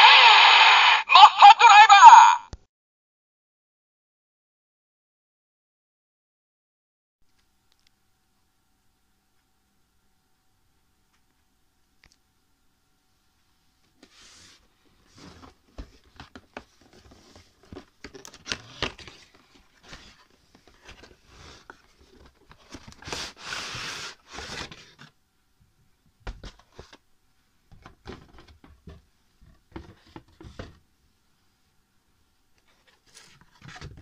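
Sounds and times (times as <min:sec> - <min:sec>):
cardboard sliding: 0:22.6 - 0:25.1.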